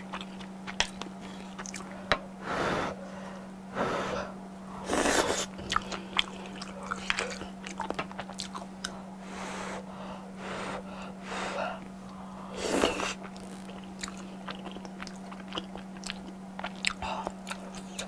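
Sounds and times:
chewing crunchy fried shrimp: 0:00.0 - 0:02.0, 0:04.8 - 0:09.0, 0:12.5 - 0:18.0
steady low hum: 0:00.0 - 0:18.0.

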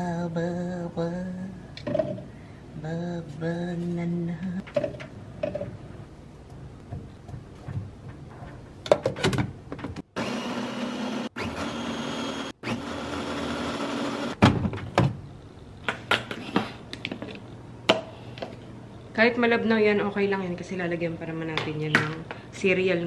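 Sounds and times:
blender running: 0:10.1 - 0:14.4.

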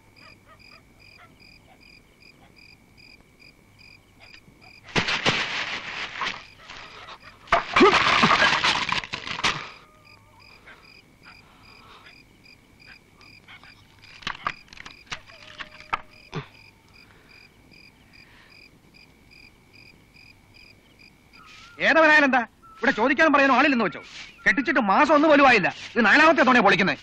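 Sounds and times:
cricket chirping: 0:00.0 - 0:27.0
bamboo sticks cracking and snapping: 0:04.9 - 0:09.8, 0:13.9 - 0:16.2.

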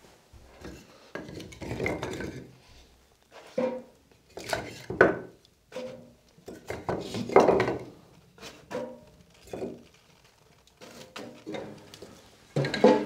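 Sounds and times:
wooden sticks clunking in stove: 0:03.4 - 0:09.8, 0:10.8 - 0:13.0.

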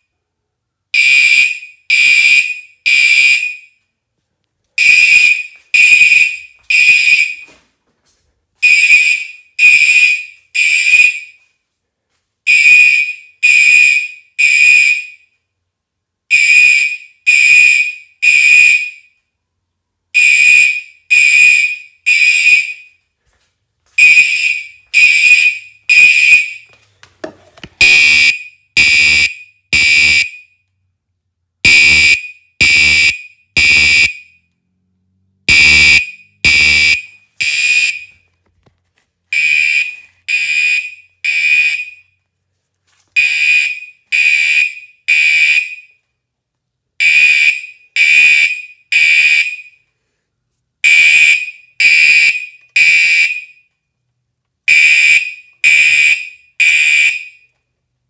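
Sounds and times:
fire alarm horn blasts: 0:01.0 - 0:03.8, 0:04.8 - 0:07.5, 0:08.6 - 0:11.5, 0:12.5 - 0:15.3, 0:16.3 - 0:19.1, 0:20.2 - 0:23.0, 0:24.0 - 0:26.7, 0:27.8 - 0:30.6, 0:31.7 - 0:34.6, 0:35.5 - 0:38.3, 0:39.3 - 0:42.2, 0:43.2 - 0:46.0, 0:47.0 - 0:49.9, 0:50.8 - 0:53.7, 0:54.7 - 0:57.5.

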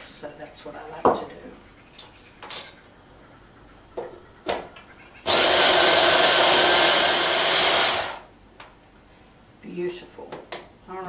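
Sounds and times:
stick blender running: 0:05.3 - 0:08.3.

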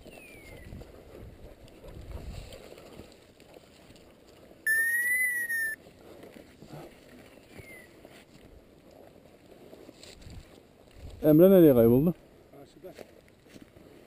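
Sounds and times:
faint falling whistle: 0:04.7 - 0:05.8
loud whistle blast: 0:04.7 - 0:05.8.

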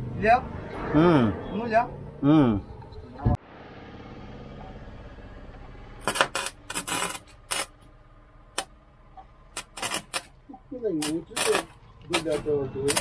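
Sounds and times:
sharp electrical clicks: 0:06.0 - 0:07.9, 0:08.5 - 0:08.7, 0:09.5 - 0:13.0.

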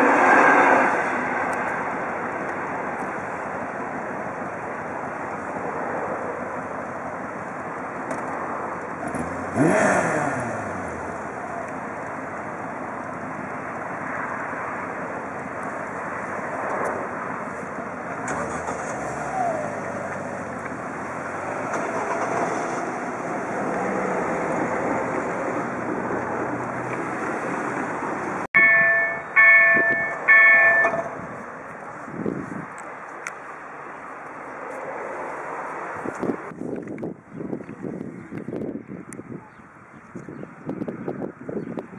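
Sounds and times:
road traffic: 0:00.0 - 0:41.9
motorcycle passing: 0:08.8 - 0:31.4
railway crossing warning bell: 0:28.6 - 0:31.4.

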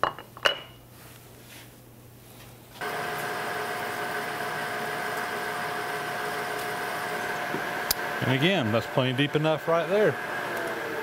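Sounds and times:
milling machine spindle running: 0:02.8 - 0:11.0.

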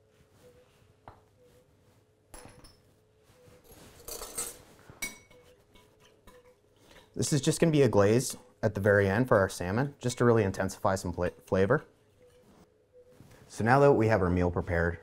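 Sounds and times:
spoon scraping a bowl: 0:03.7 - 0:07.2
spoon clinking on ceramic bowl: 0:04.1 - 0:07.2.

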